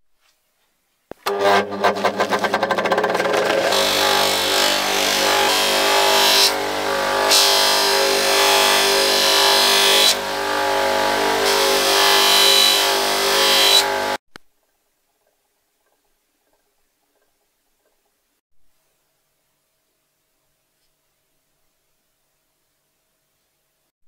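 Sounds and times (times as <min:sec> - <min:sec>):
bench grinder motor: 0:01.2 - 0:14.2
metal ring scrubbing on buffing wheel: 0:01.3 - 0:10.1.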